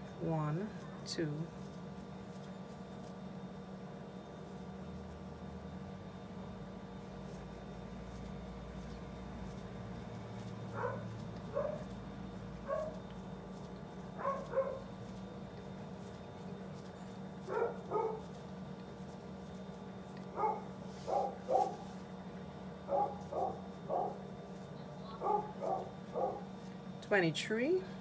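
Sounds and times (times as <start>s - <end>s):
steady low hum: 0.0s - 28.0s
dog barking: 10.7s - 11.9s, 12.6s - 13.0s, 14.2s - 14.9s, 17.4s - 18.3s, 20.4s - 21.8s, 22.9s - 24.2s, 25.1s - 26.5s.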